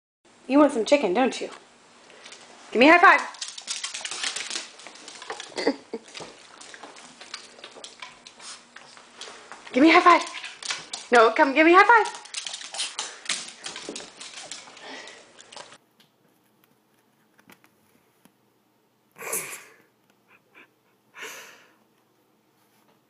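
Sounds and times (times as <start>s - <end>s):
dog claws clicking on tile: 3.1s - 15.8s.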